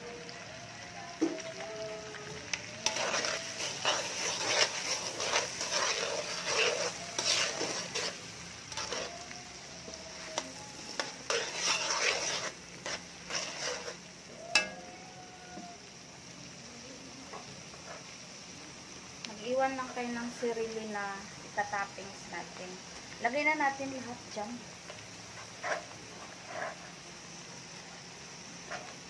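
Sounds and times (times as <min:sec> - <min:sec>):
garlic and onions sizzling in fat: 0:00.0 - 0:29.0
metal spatula scraping a wok: 0:02.6 - 0:09.4, 0:10.1 - 0:14.8, 0:24.9 - 0:27.0, 0:28.6 - 0:29.0
metal clink on wok: 0:14.5 - 0:14.9.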